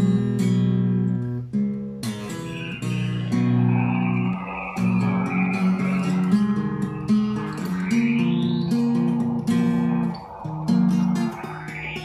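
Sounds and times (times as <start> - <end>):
fingerpicked acoustic guitar melody: 0.0 - 12.0
faint high gliding tone: 2.2 - 12.0.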